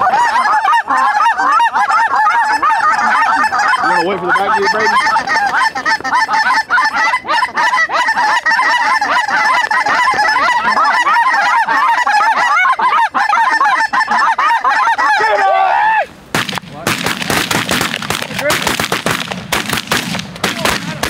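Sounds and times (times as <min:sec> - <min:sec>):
flock of geese honking: 0:00.0 - 0:16.0.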